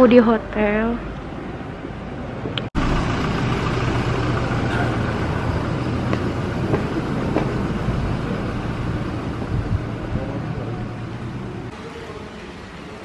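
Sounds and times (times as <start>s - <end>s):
road traffic rumble: 0.0s - 13.0s
faint footsteps on pavement: 5.6s - 7.9s.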